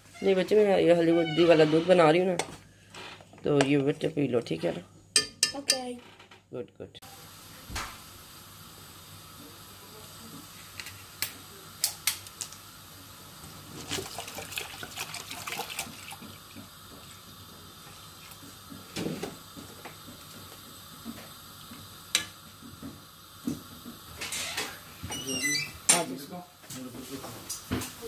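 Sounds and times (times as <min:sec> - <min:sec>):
running liquid: 0:07.0 - 0:28.0.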